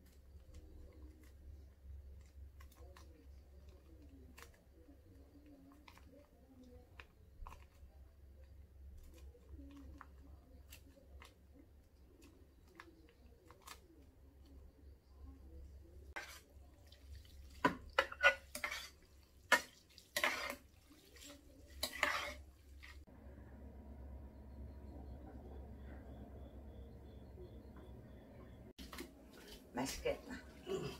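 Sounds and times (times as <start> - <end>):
chopsticks stirring sticky noodles: 15.9 - 23.1.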